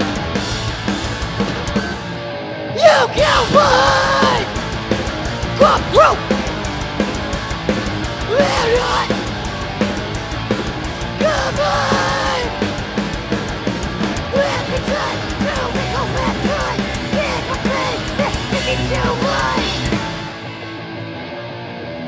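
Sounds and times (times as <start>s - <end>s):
punk band playing live: 0.0s - 22.0s
woman shouting vocals: 2.8s - 4.5s, 5.6s - 6.2s.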